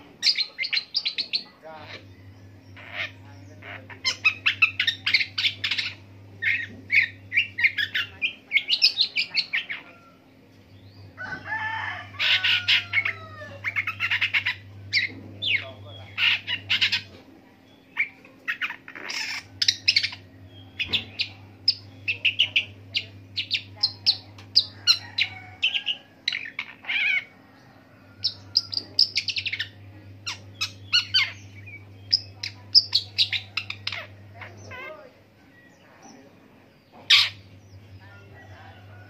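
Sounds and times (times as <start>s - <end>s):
bird singing varied chirps: 0.2s - 11.5s, 12.2s - 39.0s.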